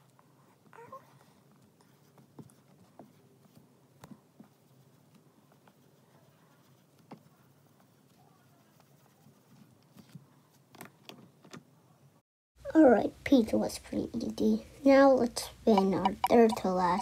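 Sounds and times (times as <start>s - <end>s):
marker scratching on whiteboard: 15.7s - 17.0s.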